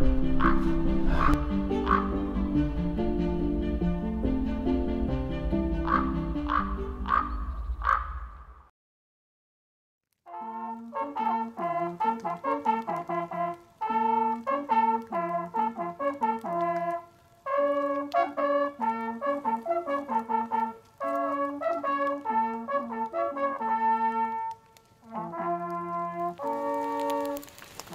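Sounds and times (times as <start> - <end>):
hunting horns playing a fanfare: 10.3 - 27.9.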